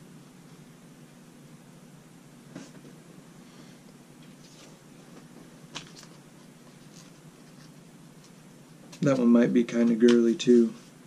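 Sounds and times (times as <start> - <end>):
low room hum: 0.0 - 11.0
faint clicks and rustles: 4.2 - 11.0.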